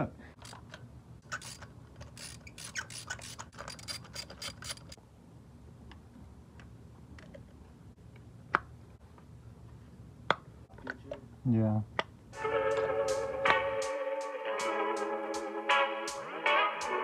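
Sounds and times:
ratchet clicking: 0.4 - 5.0.

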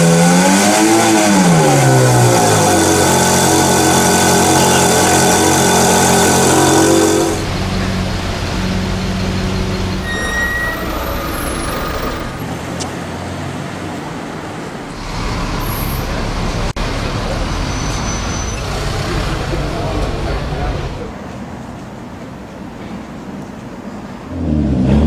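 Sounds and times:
car exhaust at raised revs: 0.0 - 7.9, 24.3 - 25.0
street traffic noise: 0.0 - 25.0
brief high squeak: 9.9 - 12.4, 17.7 - 18.8.

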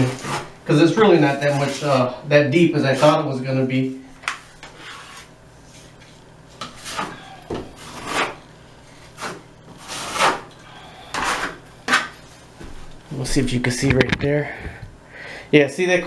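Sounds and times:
hand tool scraping wet plaster: 7.8 - 8.4, 9.2 - 10.5, 11.1 - 12.1.

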